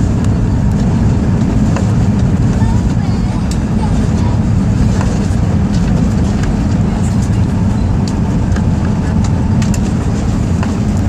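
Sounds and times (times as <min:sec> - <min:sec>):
jet engines idling: 0:00.0 - 0:11.0
wheels rumbling on pavement: 0:00.0 - 0:11.0.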